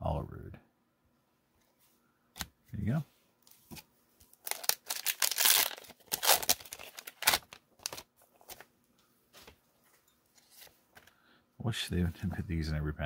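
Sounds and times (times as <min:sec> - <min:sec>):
foil wrapper crinkling and tearing: 0:04.3 - 0:08.6.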